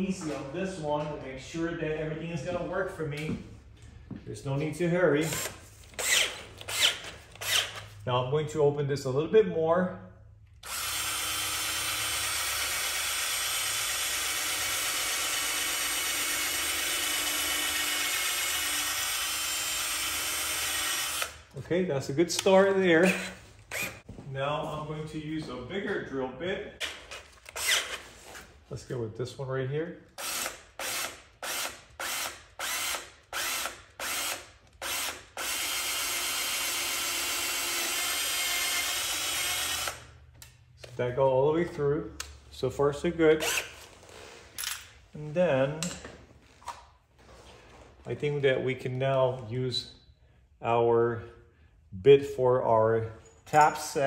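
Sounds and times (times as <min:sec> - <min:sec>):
cordless drill boring metal: 0:05.2 - 0:07.8, 0:10.6 - 0:21.4, 0:30.2 - 0:40.1, 0:43.4 - 0:43.7.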